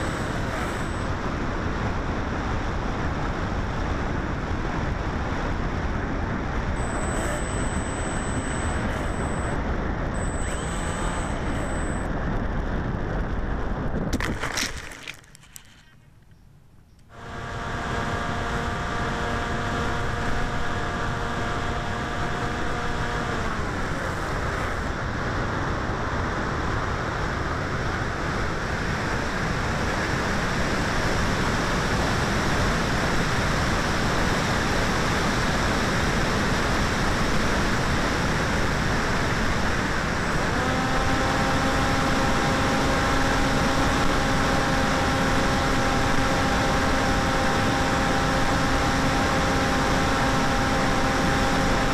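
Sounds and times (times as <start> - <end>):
electric motor whine: 0.0 - 3.6, 4.8 - 12.6, 17.1 - 26.1, 34.3 - 51.9.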